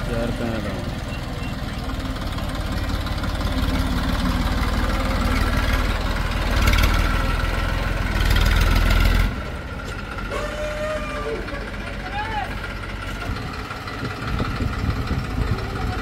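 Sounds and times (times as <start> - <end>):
heavy diesel engine running: 0.0 - 16.0.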